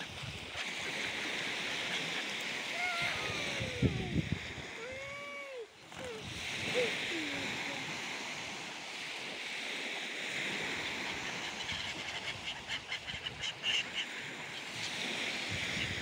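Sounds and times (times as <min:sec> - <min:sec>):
waves washing onto sandy shore: 0:00.0 - 0:16.0.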